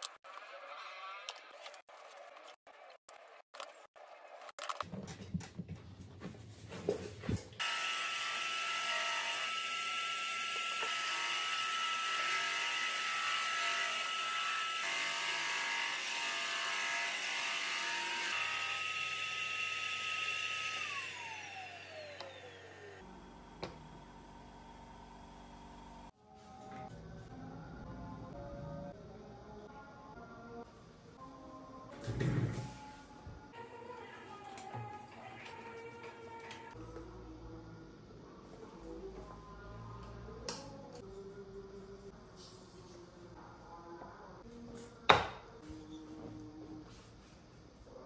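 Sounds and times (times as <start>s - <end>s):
drum sander whining: 18.5s - 23.8s.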